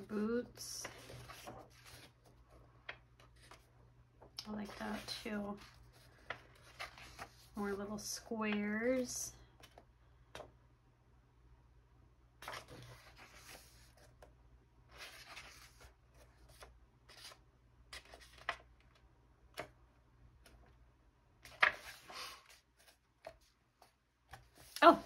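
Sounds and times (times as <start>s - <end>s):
book pages turning: 0.5s - 9.8s, 12.4s - 14.3s, 14.9s - 19.8s, 21.4s - 25.0s.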